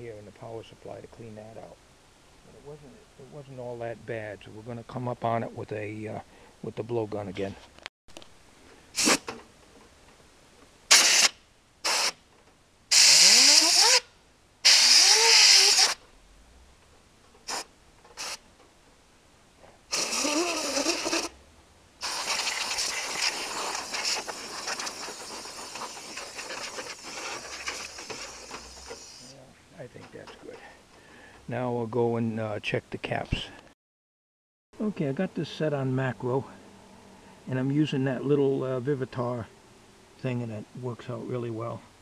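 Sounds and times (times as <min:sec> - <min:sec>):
compressed air hissing blasts: 0:08.9 - 0:09.4, 0:10.9 - 0:12.2, 0:12.9 - 0:16.0, 0:17.4 - 0:18.4, 0:19.9 - 0:21.3, 0:22.0 - 0:29.4.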